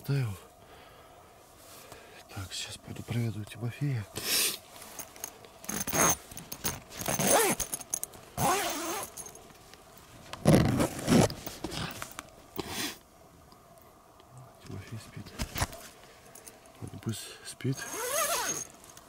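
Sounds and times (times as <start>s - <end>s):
tent fabric rustling: 4.6s - 9.3s, 10.0s - 12.3s, 17.8s - 18.9s
tent zipper being pulled: 5.7s - 7.8s, 8.4s - 9.3s, 10.4s - 11.8s, 17.8s - 18.7s.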